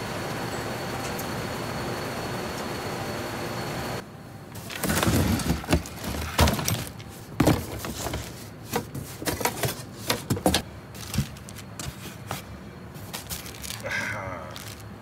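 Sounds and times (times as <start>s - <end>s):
metal and plastic parts clattering: 4.6s - 12.2s.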